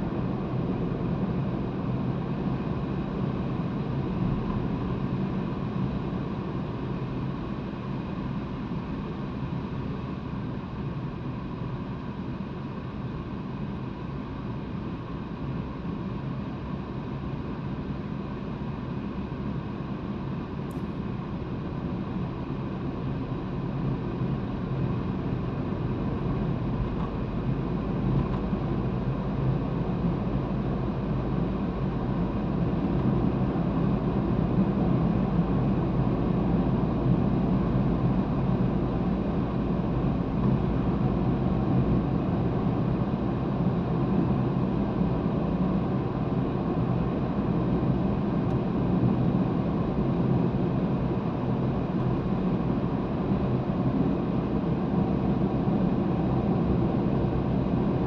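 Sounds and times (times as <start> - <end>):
car tyres and engine rumble: 0.0 - 58.0.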